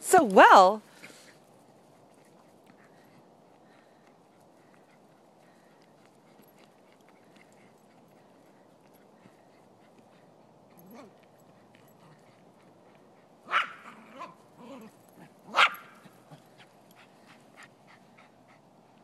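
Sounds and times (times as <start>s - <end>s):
dog barking sharply: 13.5s - 13.9s, 15.5s - 15.9s.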